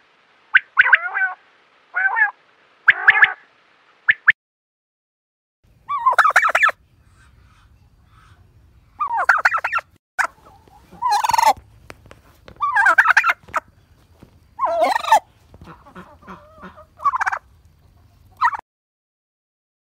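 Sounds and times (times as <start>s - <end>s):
quail calling: 0.5s - 3.5s, 5.9s - 18.6s
faint low hum: 5.7s - 18.4s.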